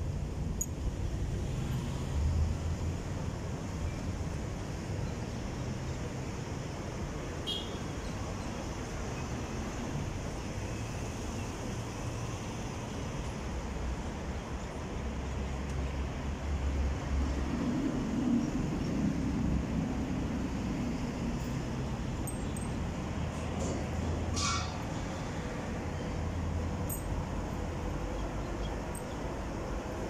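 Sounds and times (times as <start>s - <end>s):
street traffic rumble: 0.0s - 30.0s
brief high squeak: 24.4s - 24.9s.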